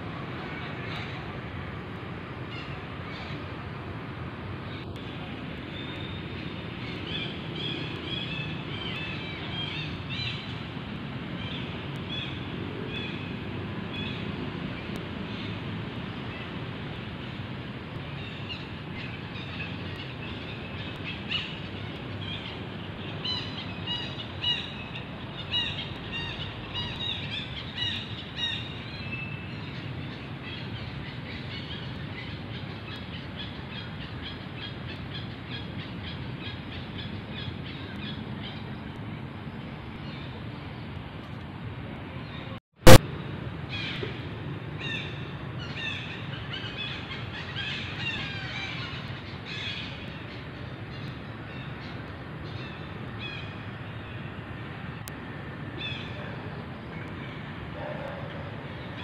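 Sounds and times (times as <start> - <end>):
birds chirping: 4.6 - 39.2.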